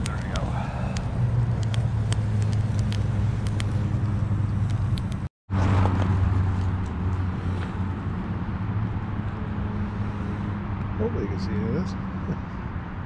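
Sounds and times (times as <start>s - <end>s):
wood fire crackling and popping: 0.0s - 5.3s
distant highway traffic drone: 0.0s - 13.0s.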